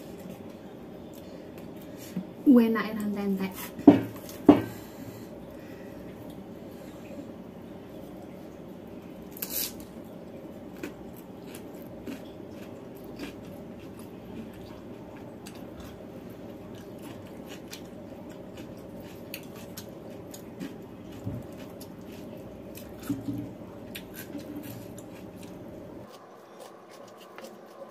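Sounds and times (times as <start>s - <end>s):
low background hum: 0.0s - 27.9s
chewing and mouth sounds: 10.7s - 27.9s.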